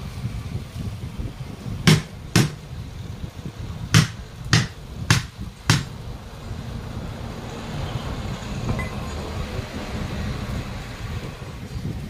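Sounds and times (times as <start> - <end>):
hammer striking truck wheel: 1.9 - 2.7, 4.0 - 5.9.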